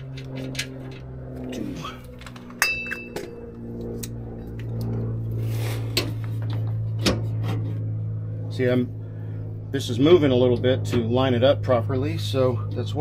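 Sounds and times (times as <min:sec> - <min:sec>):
steady low hum: 0:00.0 - 0:13.0
bright metallic ring: 0:02.6 - 0:03.4.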